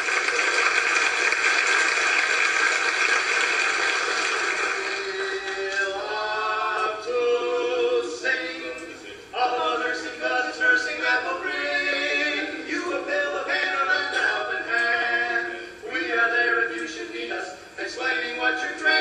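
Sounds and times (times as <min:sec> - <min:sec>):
men singing in harmony: 0:04.7 - 0:19.0.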